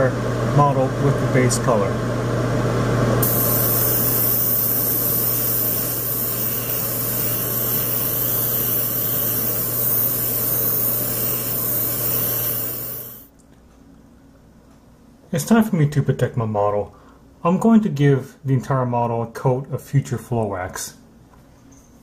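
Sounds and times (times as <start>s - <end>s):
steady low hum: 0.0s - 15.8s
airbrush spraying hiss: 3.2s - 13.3s.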